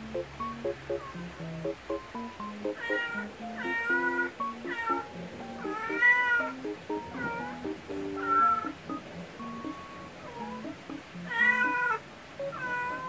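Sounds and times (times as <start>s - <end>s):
light plucked background music: 0.0s - 13.0s
cat meowing: 2.8s - 5.0s, 5.6s - 6.5s, 7.1s - 7.6s, 8.2s - 8.7s, 9.6s - 10.7s, 11.3s - 13.0s.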